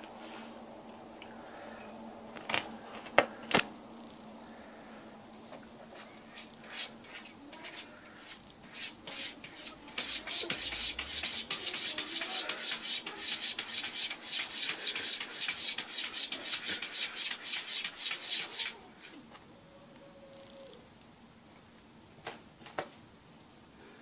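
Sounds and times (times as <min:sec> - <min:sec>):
cat claws scratching furniture: 0:06.4 - 0:18.8.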